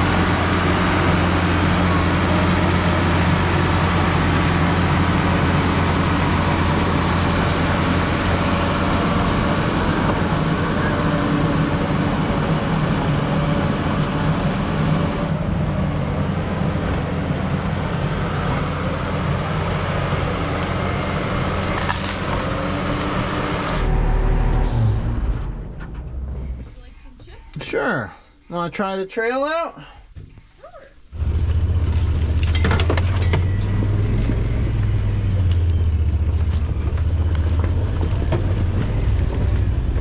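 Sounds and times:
bulldozer diesel engine: 0.0s - 27.9s, 31.1s - 40.0s.

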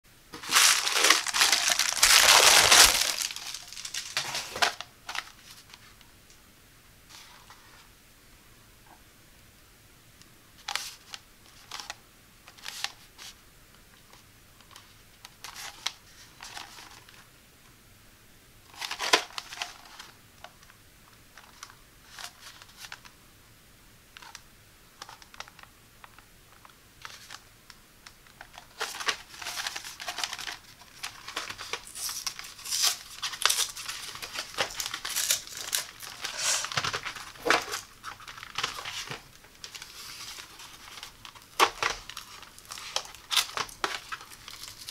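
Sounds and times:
card tearing from plastic: 0.4s - 4.8s, 31.1s - 44.9s
plastic blister pack crinkling: 0.4s - 5.4s, 28.3s - 44.9s.

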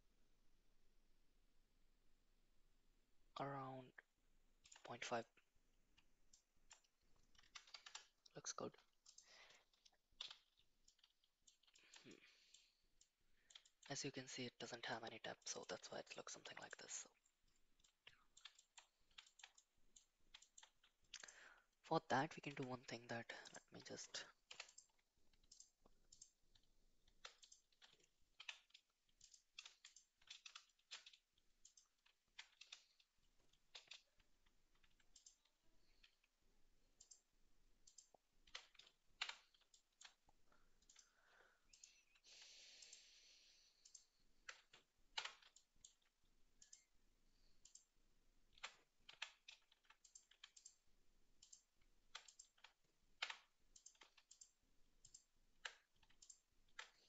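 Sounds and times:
mouse and keyboard clicks: 6.3s - 12.7s, 13.5s - 13.9s, 17.8s - 21.3s, 23.4s - 36.2s, 37.8s - 41.1s, 43.8s - 46.9s, 48.5s - 50.8s, 51.4s - 57.0s.

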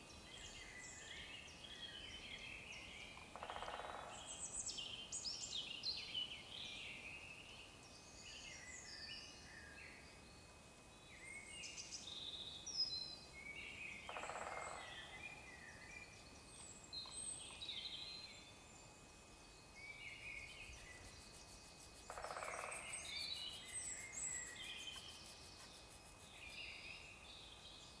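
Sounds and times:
songbirds singing and chirping: 0.0s - 28.0s
woodpecker drumming: 20.4s - 27.1s.

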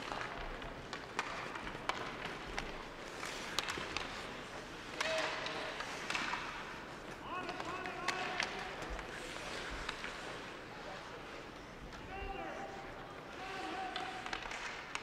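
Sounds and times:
skates scraping ice: 0.0s - 15.0s
sticks and puck clacking: 0.0s - 15.0s.

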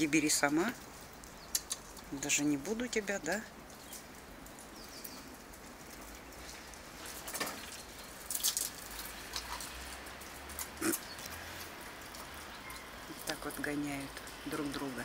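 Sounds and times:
squirrel claws scratching bark: 1.3s - 2.2s.

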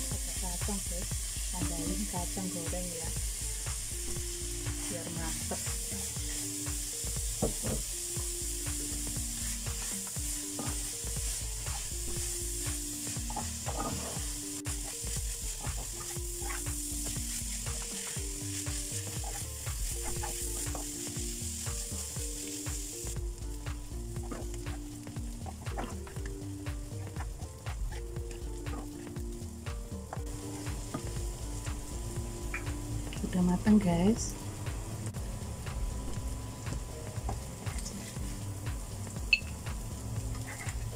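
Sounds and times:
background music melody: 0.0s - 40.9s
food sizzling in oil: 0.0s - 40.9s
metal spatula scraping a pan: 13.2s - 20.7s.

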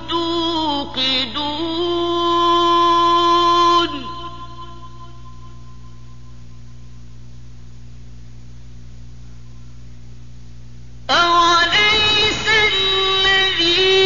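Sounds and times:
low electrical hum: 0.0s - 14.0s
man reciting melodically: 11.1s - 14.0s.

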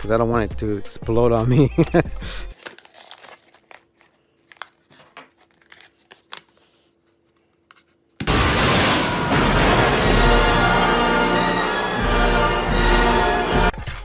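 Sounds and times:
packaging crinkling and tearing: 2.5s - 6.8s
loud blast of music: 8.2s - 13.7s.

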